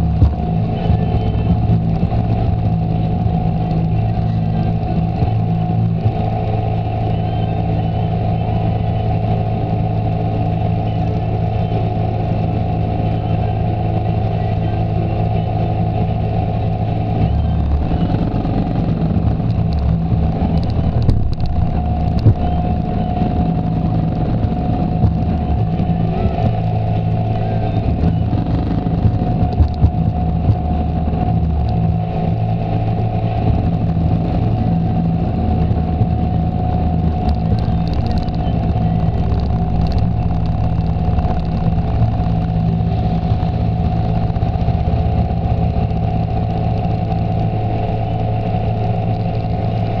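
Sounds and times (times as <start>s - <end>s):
atv engine running: 0.0s - 50.0s.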